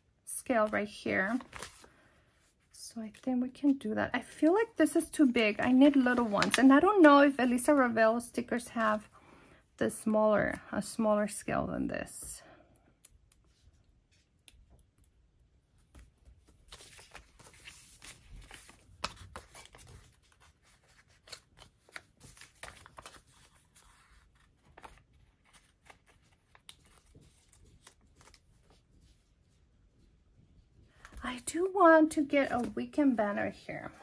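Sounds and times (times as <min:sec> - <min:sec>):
paper rustling: 0:00.6 - 0:02.0, 0:05.5 - 0:09.1, 0:15.8 - 0:29.6, 0:32.0 - 0:34.0.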